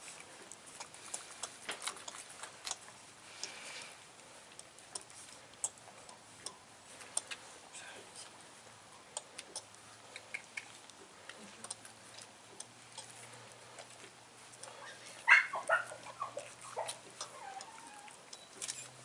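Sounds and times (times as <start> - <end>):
puppies yelping and squeaking: 14.7 - 19.0
puppy whine: 14.8 - 18.9.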